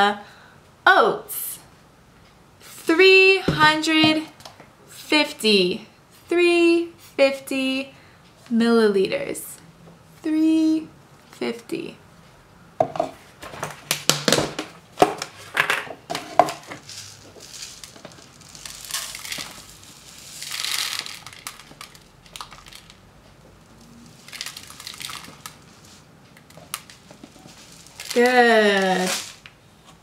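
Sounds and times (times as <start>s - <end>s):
oats pouring into a plastic jug: 16.8s - 22.9s, 24.0s - 26.0s.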